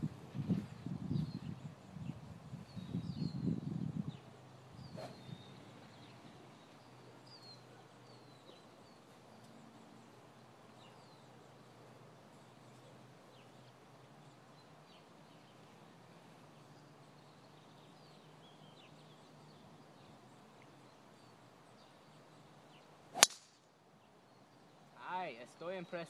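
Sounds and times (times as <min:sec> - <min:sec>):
faint outdoor background: 0:00.0 - 0:26.0
golf club striking ball: 0:23.1 - 0:23.5.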